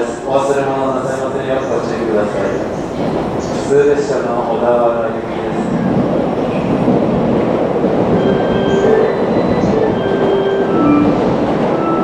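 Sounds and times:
electric train humming at platform: 0.0 - 12.0
platform departure chime melody: 8.2 - 12.0.

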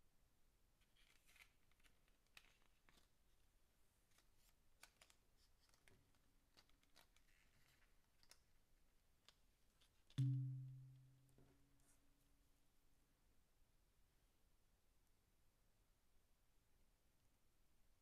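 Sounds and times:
low ringing thump: 10.2 - 11.0.

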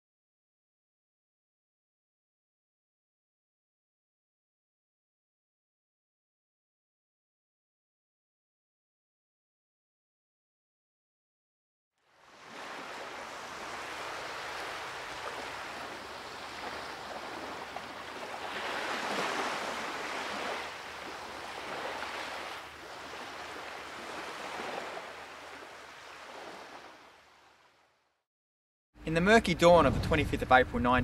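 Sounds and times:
surf washing onto beach: 12.0 - 27.9.

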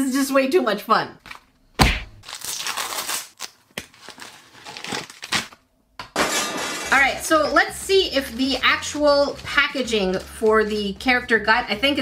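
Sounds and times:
foil packets crinkling: 2.2 - 5.7.

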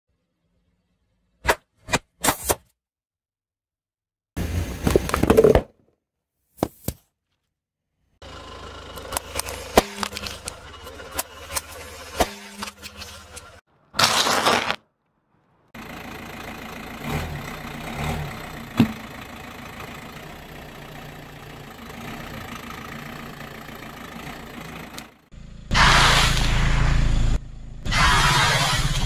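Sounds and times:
car engine running slowly: 8.2 - 12.2, 15.8 - 25.8
tyre crushing aerosol can: 14.0 - 14.8
loud burst of hiss: 25.7 - 27.1.

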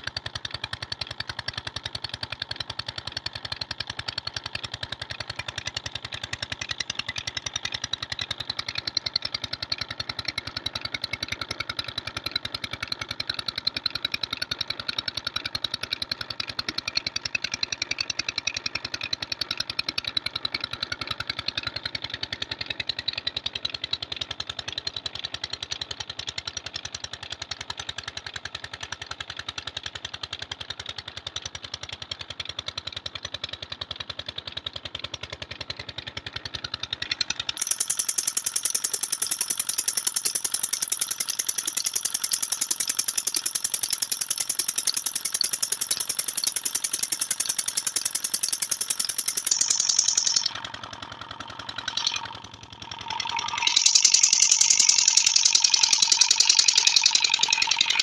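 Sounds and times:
diesel engine running: 30.0 - 58.0.

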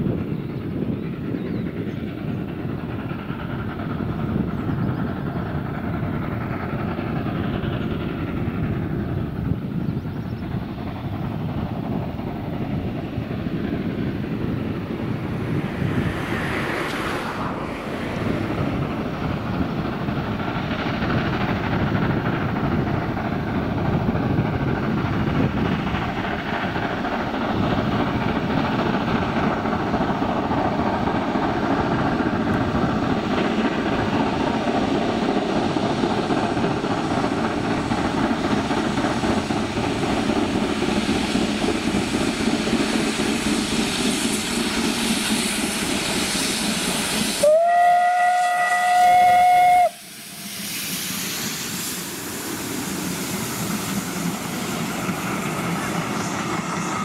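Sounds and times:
steam locomotive working: 0.0 - 57.0
wind on microphone: 0.0 - 57.0
steam whistle: 47.4 - 50.5.

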